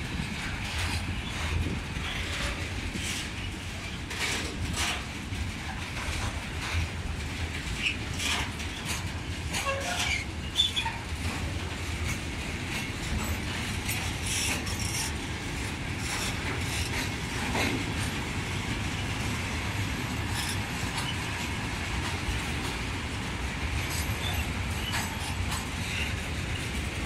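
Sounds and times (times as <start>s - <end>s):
clacks over rail joints: 0.0s - 27.0s
train wheels rumbling on rail: 0.0s - 27.0s
train wheel squeals: 0.6s - 5.0s, 7.7s - 11.4s, 12.1s - 15.2s, 16.0s - 17.6s, 20.2s - 21.4s, 23.9s - 26.7s.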